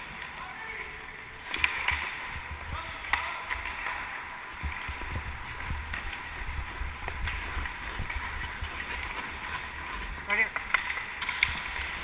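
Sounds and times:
hockey sticks and puck clacking: 1.4 - 12.0
skate blades scraping ice: 1.4 - 12.0
wind rumble on microphone: 4.6 - 10.2.

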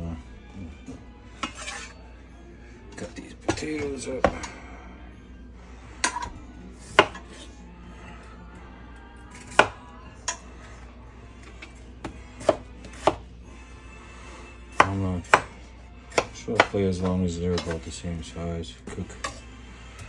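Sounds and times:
knife cutting on wooden board: 1.4 - 2.0, 6.0 - 7.5, 11.6 - 13.3.

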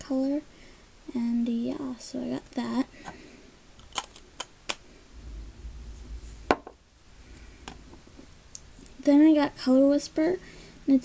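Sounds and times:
low handling rumble: 4.9 - 9.1.

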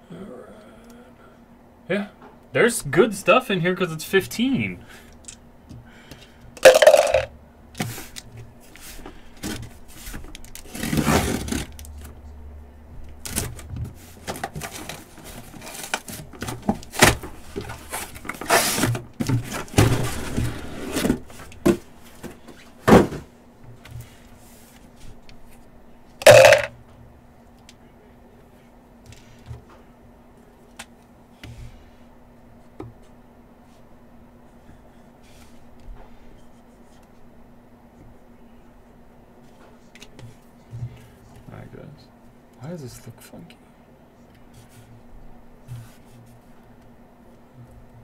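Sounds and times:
knocks and thumps on boxes: 16.1 - 23.3, 26.2 - 26.7.

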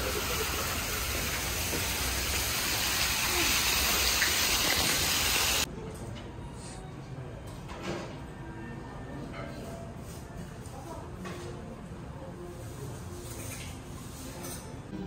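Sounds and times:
falling water rushing: 0.0 - 5.7.

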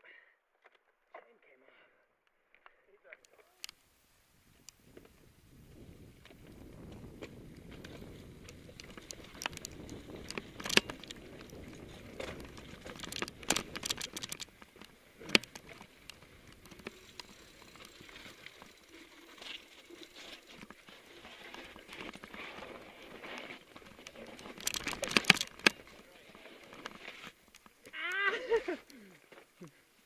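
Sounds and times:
bike tyres crunching over grit: 4.8 - 28.0
bike rattling and clicking: 5.7 - 27.9.

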